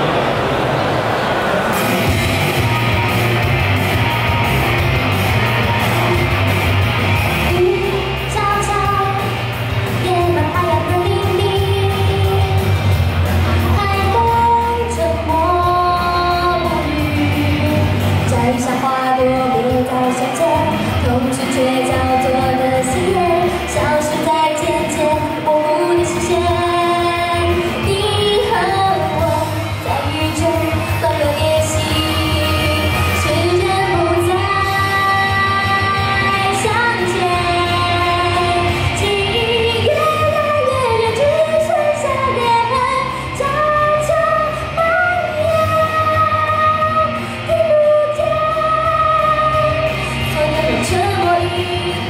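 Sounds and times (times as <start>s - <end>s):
band accompaniment with steady beat: 1.7s - 41.3s
backing music with drums: 1.8s - 42.8s
woman singing into a microphone: 7.4s - 9.4s, 10.0s - 12.8s, 13.6s - 52.0s.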